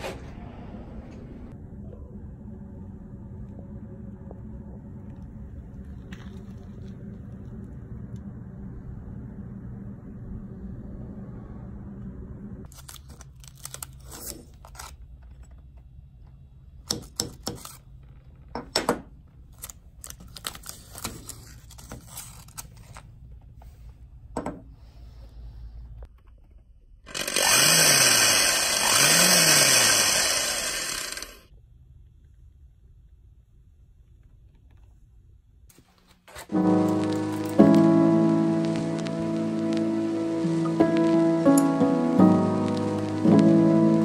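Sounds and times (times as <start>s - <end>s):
power tool running: 27.1s - 31.5s.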